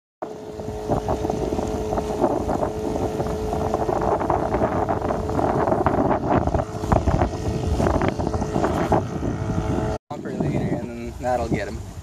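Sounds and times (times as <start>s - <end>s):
boat engine drone: 0.2s - 12.0s
wind buffeting microphone: 0.2s - 12.0s.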